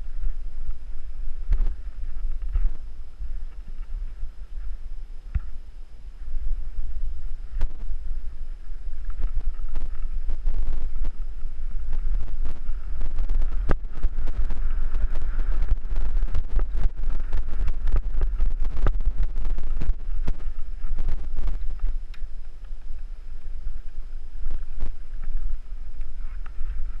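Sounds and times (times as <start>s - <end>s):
wind buffeting microphone: 0.0s - 27.0s
bike rattling on gravel: 6.2s - 27.0s.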